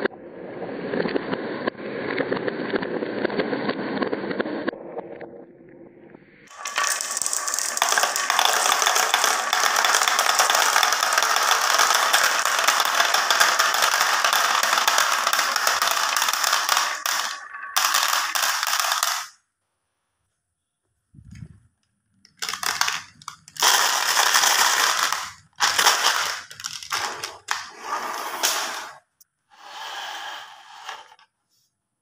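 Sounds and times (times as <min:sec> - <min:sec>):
marbles clattering on wood and plastic: 0:06.5 - 0:19.4, 0:22.3 - 0:29.0.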